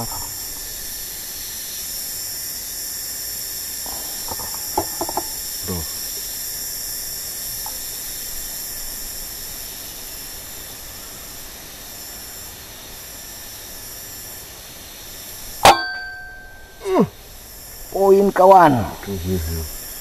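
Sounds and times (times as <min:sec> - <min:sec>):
steady high hiss: 0:00.0 - 0:20.0.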